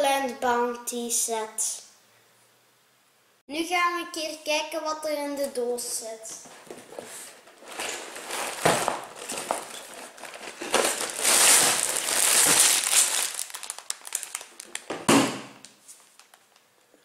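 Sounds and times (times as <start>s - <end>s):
plastic bags crinkling: 6.8s - 16.7s.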